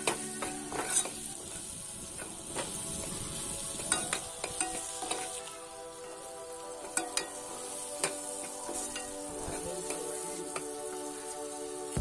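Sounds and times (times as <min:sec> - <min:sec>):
ladle scraping pan: 0:00.0 - 0:01.2
oil sizzling: 0:00.0 - 0:12.0.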